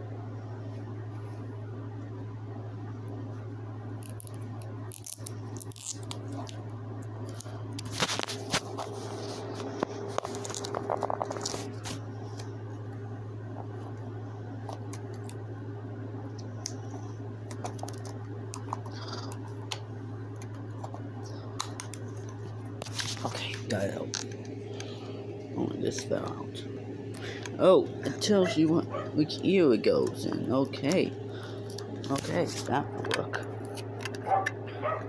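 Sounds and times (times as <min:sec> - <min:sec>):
steady low hum: 0:00.0 - 0:35.0
crinkling plastic packaging: 0:04.1 - 0:06.6, 0:07.2 - 0:12.0, 0:21.6 - 0:24.4
small clicks and scrapes: 0:07.2 - 0:12.5, 0:16.4 - 0:19.8.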